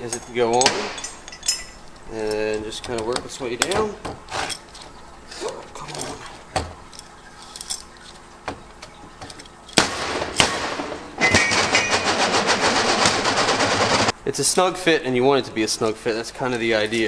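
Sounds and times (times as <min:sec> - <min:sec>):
metal clinks and taps: 0:00.1 - 0:03.8
fast mechanical rattle: 0:11.4 - 0:14.1.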